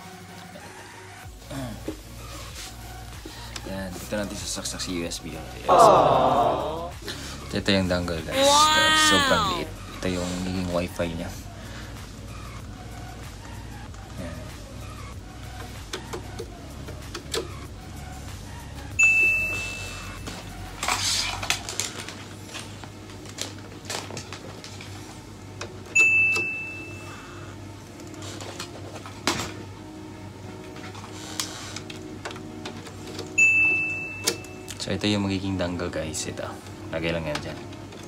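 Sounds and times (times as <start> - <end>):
high single-tone ding: 19.0 - 20.0, 26.0 - 27.1, 33.4 - 34.5.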